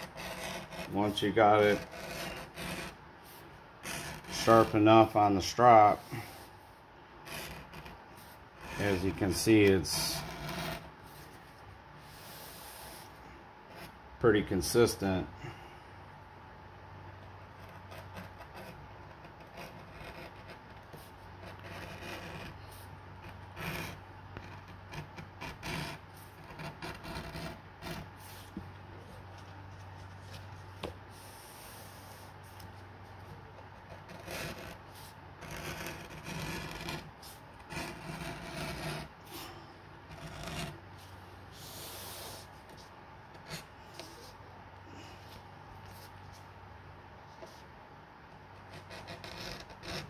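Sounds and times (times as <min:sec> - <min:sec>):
edge beveler scraping leather: 0:00.0 - 0:06.5, 0:07.2 - 0:11.3, 0:17.5 - 0:28.6, 0:33.8 - 0:40.8, 0:48.6 - 0:50.0.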